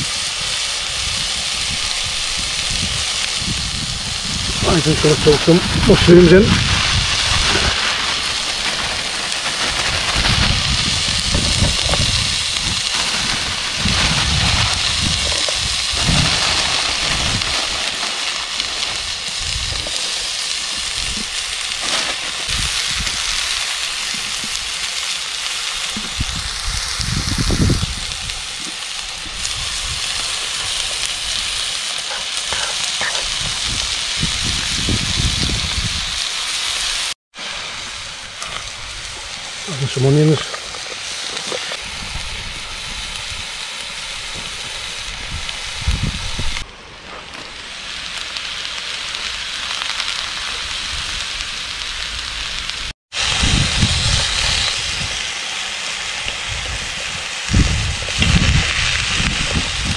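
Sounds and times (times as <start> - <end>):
wind on microphone: 0.0 - 18.0, 18.8 - 20.0, 22.4 - 23.4, 25.9 - 36.3, 41.8 - 46.6, 53.2 - 55.2, 56.2 - 59.9
meat sizzling in a frying pan: 0.0 - 46.6, 47.5 - 59.9.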